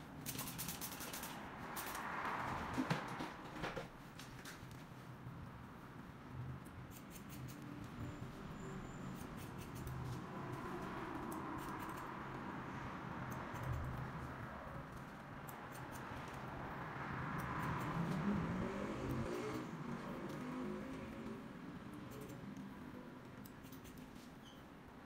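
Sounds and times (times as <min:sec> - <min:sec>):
shears snipping hair: 0:00.2 - 0:02.0, 0:06.9 - 0:07.8, 0:09.1 - 0:12.2, 0:14.9 - 0:16.4, 0:23.4 - 0:24.3.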